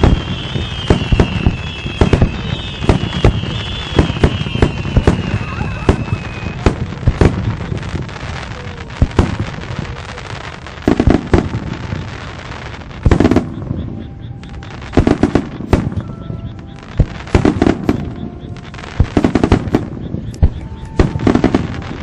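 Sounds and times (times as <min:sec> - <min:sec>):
fireworks bursting: 0:00.0 - 0:22.0
small firework pops: 0:00.0 - 0:22.0.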